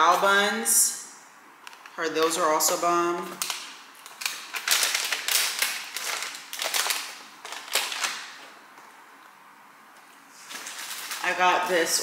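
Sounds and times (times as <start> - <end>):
bags and packaging rustling: 3.3 - 8.6, 10.3 - 12.0.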